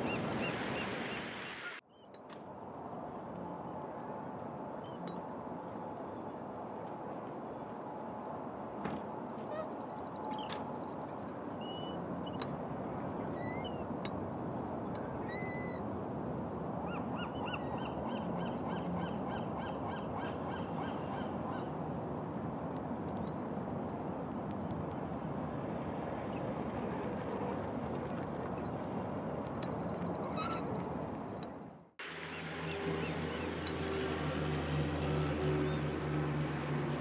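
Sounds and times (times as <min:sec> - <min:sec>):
seabirds whistling and trilling: 0:00.0 - 0:01.8, 0:07.8 - 0:13.9, 0:14.5 - 0:22.4, 0:25.6 - 0:31.7.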